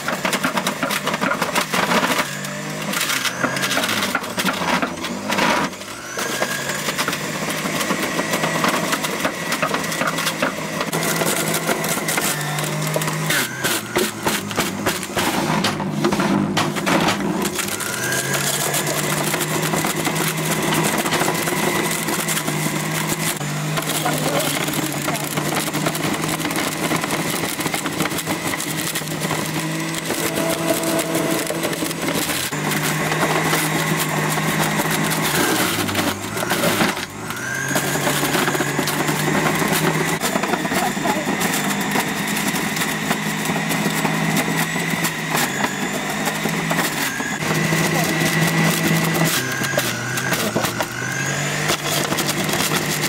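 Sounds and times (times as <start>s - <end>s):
juicer motor whining: 0.0s - 53.0s.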